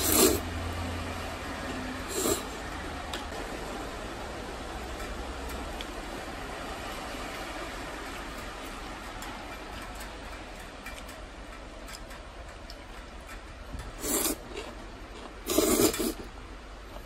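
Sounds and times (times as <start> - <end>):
heavy rain hiss: 0.0 - 9.5, 13.8 - 17.0
chopsticks clicking on bowl: 8.3 - 14.7.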